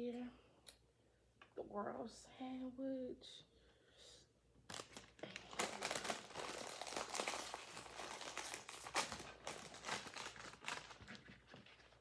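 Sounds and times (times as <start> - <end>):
plastic chip bag crinkling: 4.7 - 12.0.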